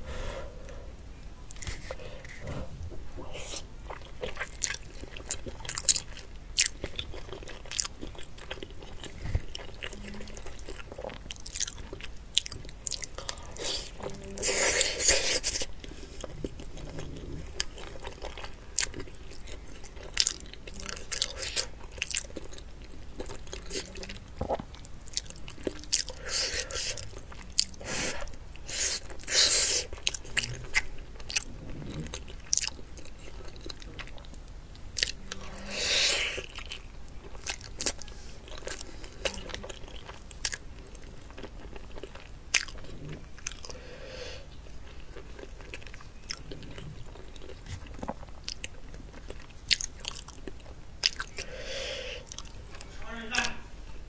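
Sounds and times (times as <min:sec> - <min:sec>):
person chewing: 0:01.5 - 0:53.6.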